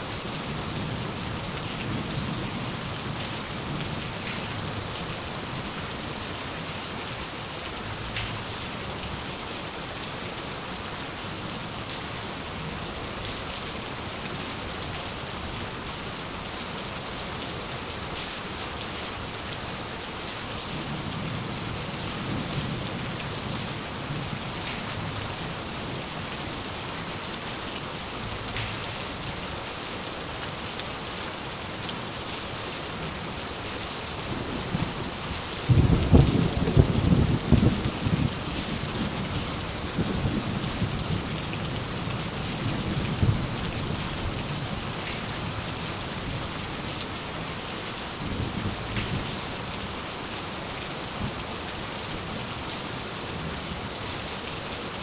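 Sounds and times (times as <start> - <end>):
rain falling: 0.0 - 55.0
thunder rumbles: 35.6 - 39.3.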